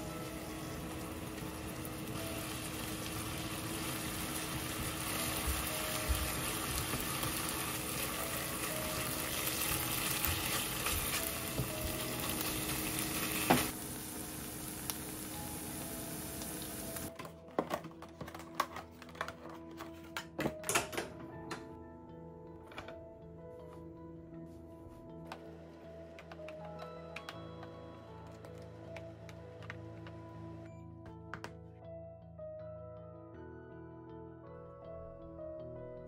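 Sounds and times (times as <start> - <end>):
meat sizzling in a frying pan: 0.2 - 17.1
plastic containers clacking: 17.1 - 21.2.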